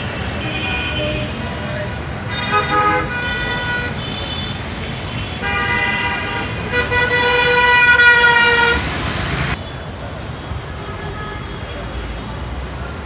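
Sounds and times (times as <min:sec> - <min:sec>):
traffic rumble: 0:00.0 - 0:13.0
vehicle horns honking: 0:00.2 - 0:08.9.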